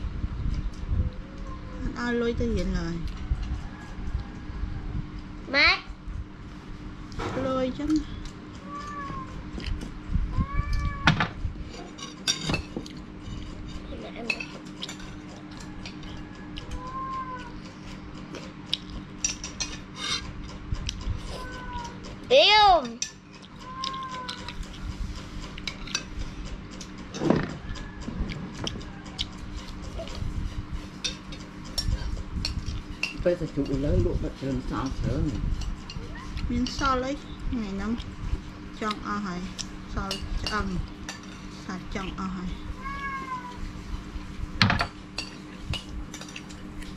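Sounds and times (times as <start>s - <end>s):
spoon scraping ceramic plate: 19.3s - 20.4s.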